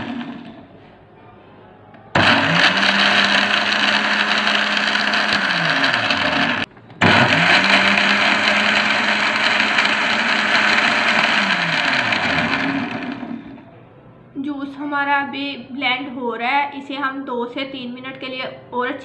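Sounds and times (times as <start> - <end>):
blender motor whirring: 0.0 - 0.6, 2.2 - 13.6.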